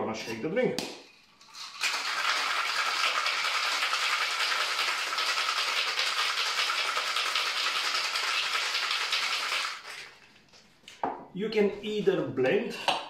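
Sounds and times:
ice rattling in cocktail shaker: 1.4s - 10.1s.

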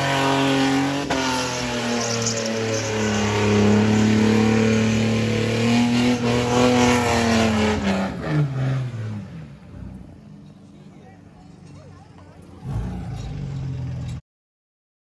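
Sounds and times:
car engine revving high: 0.0s - 9.8s
tyres spinning on tarmac: 1.3s - 6.4s.

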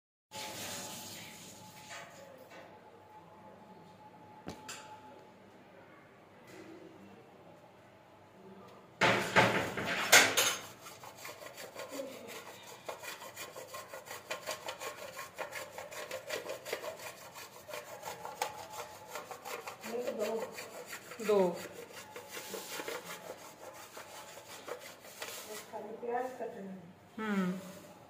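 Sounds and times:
grating on a metal grater: 9.8s - 25.8s.

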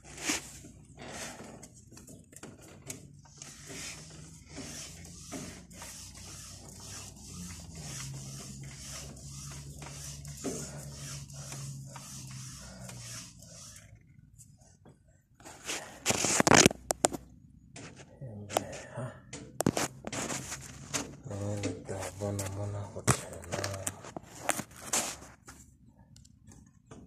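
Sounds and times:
fingers scraping on metal: 2.8s - 14.0s.

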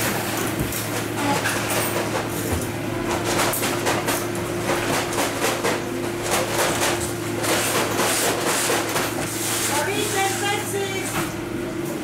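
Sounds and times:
steady machine hum: 0.0s - 12.0s.

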